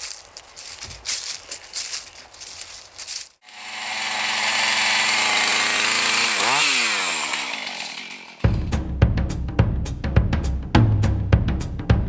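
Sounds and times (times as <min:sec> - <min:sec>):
footsteps in dry leaves: 0:00.0 - 0:04.2
chainsaw running at high revs: 0:03.4 - 0:08.6.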